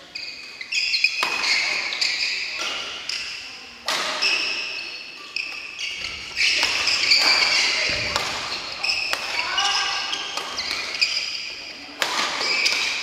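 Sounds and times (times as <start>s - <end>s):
shoes squeaking on wooden floor: 0.0s - 3.2s, 4.1s - 11.6s, 12.4s - 13.0s
rackets striking shuttlecocks: 1.0s - 1.8s, 2.5s - 4.7s, 5.4s - 11.2s, 11.9s - 13.0s.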